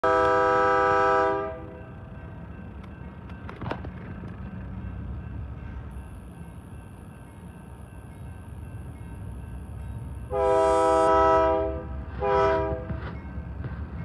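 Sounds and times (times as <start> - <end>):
locomotive air horn: 0.0 - 1.8, 10.3 - 13.0
locomotive rumbling: 0.0 - 14.0.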